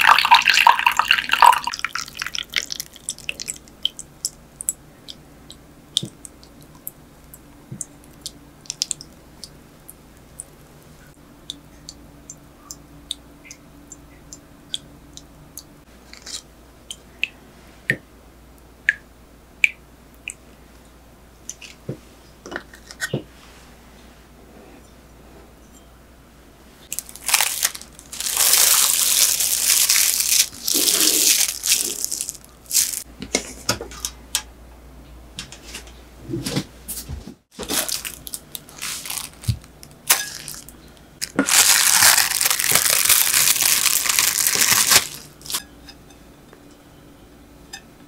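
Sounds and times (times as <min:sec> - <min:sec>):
crinkling and rustling: 0:26.9 - 0:33.1, 0:35.6 - 0:45.6.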